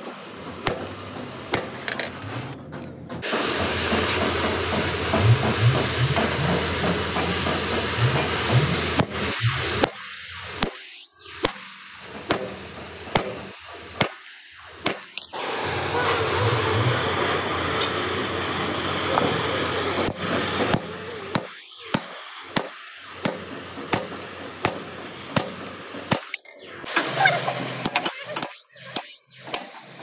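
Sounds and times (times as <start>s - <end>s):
loud steady hiss: 0.0s - 2.6s, 3.2s - 30.0s.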